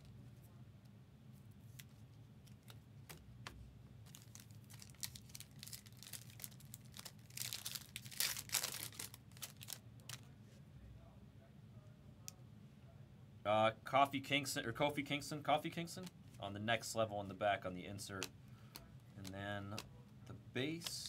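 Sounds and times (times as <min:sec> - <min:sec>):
wrapper crinkling: 0:04.0 - 0:10.2
trading card pack tearing: 0:04.1 - 0:09.8.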